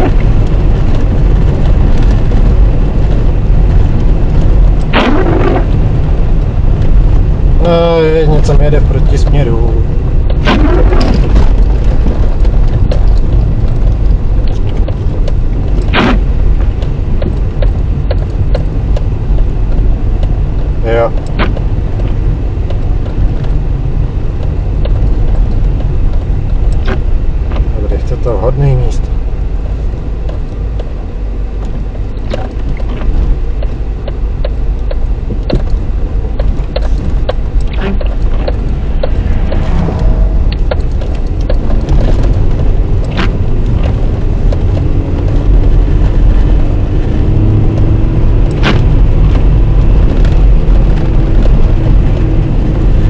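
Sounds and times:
tyre and engine rumble: 0.0s - 53.0s
light irregular ticks: 11.5s - 23.6s, 24.3s - 29.2s, 31.6s - 53.0s.

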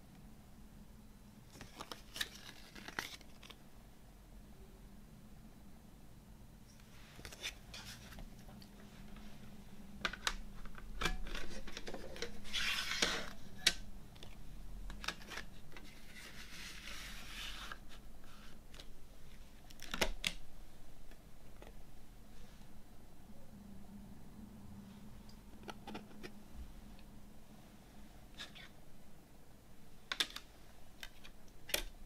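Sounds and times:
paper booklet rustling: 1.5s - 3.6s, 7.0s - 9.4s.

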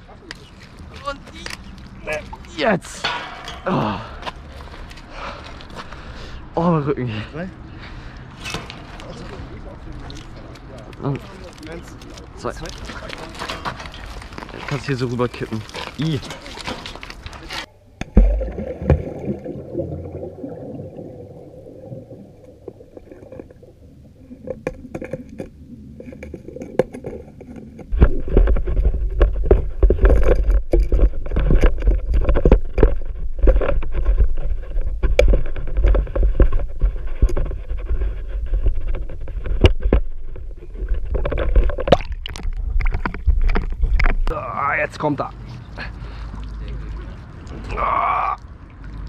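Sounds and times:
heavy clank: 3.0s - 4.3s
muffled underwater water rumble: 18.0s - 44.3s.

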